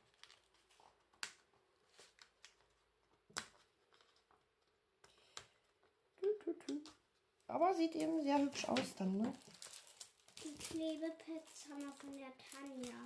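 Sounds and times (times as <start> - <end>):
faint paper taps and clicks: 0.2 - 6.0, 8.0 - 9.4.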